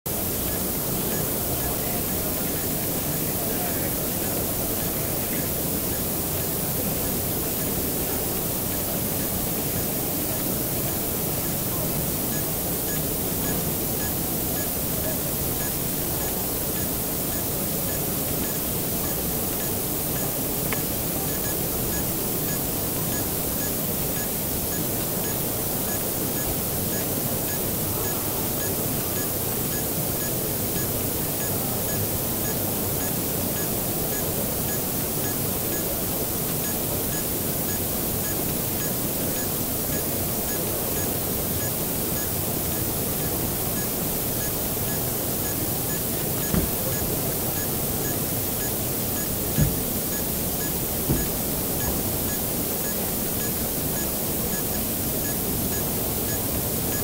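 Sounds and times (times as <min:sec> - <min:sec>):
brief thump: 0:46.5 - 0:46.8, 0:49.6 - 0:49.8, 0:51.1 - 0:51.4.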